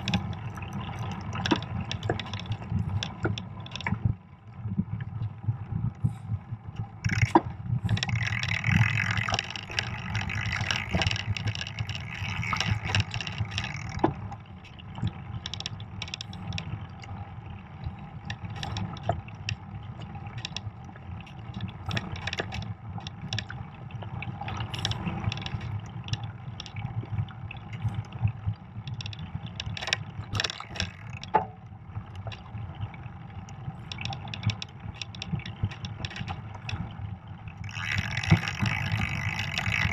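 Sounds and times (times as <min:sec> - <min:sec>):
bike knocks and rattles: 0:07.0 - 0:14.2.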